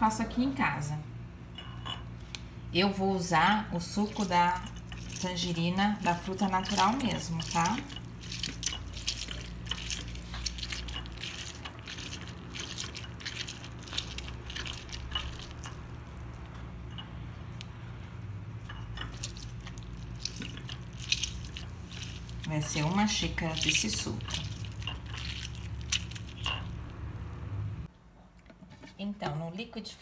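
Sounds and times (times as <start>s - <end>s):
fruit squishing on citrus reamer: 3.8s - 27.9s
juice dripping: 4.2s - 27.9s.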